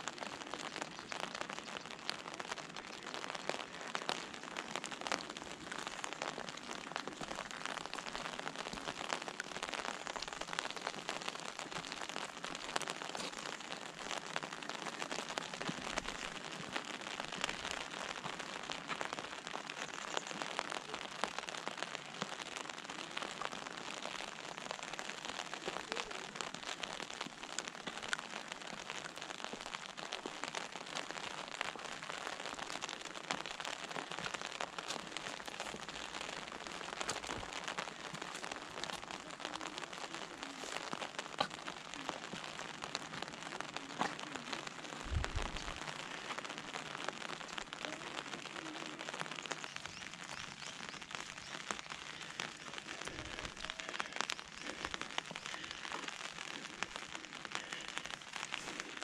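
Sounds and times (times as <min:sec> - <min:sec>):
rain on an umbrella: 0:00.0 - 0:59.0.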